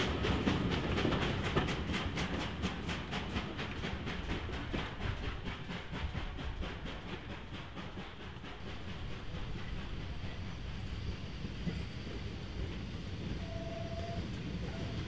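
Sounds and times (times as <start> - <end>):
steam locomotive chuffing: 0.0 - 15.0
low rumble and steam hiss: 5.1 - 15.0.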